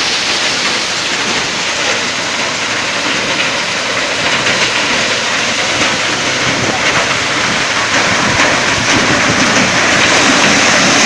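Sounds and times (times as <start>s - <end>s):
maize thresher running: 0.0s - 11.0s.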